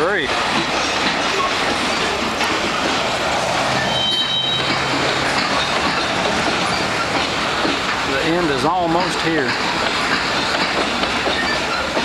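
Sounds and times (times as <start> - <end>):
steel train wheels on rail: 0.0 - 12.0
high wheel squeal: 3.1 - 9.2, 11.3 - 12.0.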